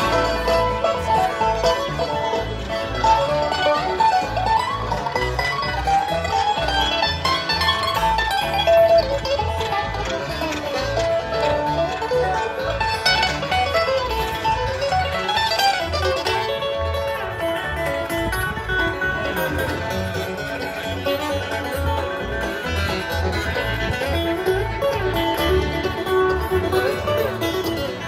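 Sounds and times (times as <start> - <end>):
bluegrass band over pa: 0.0 - 28.0.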